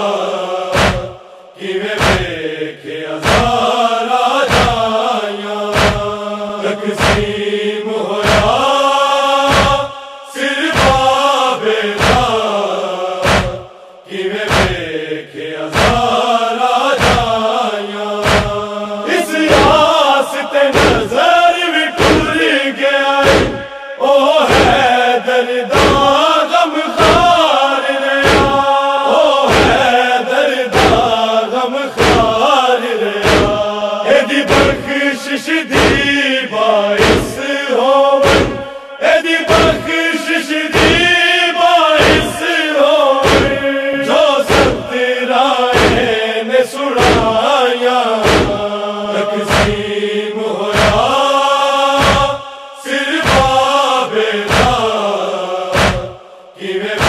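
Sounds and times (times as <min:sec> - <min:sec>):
men chanting in unison: 0:00.0 - 0:57.0
hands slapping chest: 0:00.7 - 0:01.2, 0:02.0 - 0:02.3, 0:03.2 - 0:03.6, 0:04.5 - 0:04.8, 0:05.7 - 0:06.2, 0:07.0 - 0:07.3, 0:08.2 - 0:08.6, 0:09.5 - 0:09.8, 0:10.8 - 0:11.0, 0:12.0 - 0:12.3, 0:13.2 - 0:13.7, 0:14.5 - 0:14.8, 0:15.7 - 0:16.0, 0:17.0 - 0:17.4, 0:18.2 - 0:18.6, 0:20.8 - 0:21.1, 0:22.0 - 0:22.3, 0:23.2 - 0:23.6, 0:28.2 - 0:28.6, 0:32.0 - 0:32.4, 0:33.2 - 0:33.6, 0:34.5 - 0:34.8, 0:37.0 - 0:37.3, 0:38.2 - 0:38.6, 0:43.2 - 0:43.6, 0:44.5 - 0:44.9, 0:45.8 - 0:46.0, 0:47.0 - 0:47.4, 0:48.2 - 0:48.6, 0:49.5 - 0:49.8, 0:50.7 - 0:51.1, 0:52.0 - 0:52.4, 0:53.2 - 0:53.6, 0:54.5 - 0:54.8, 0:55.7 - 0:56.2.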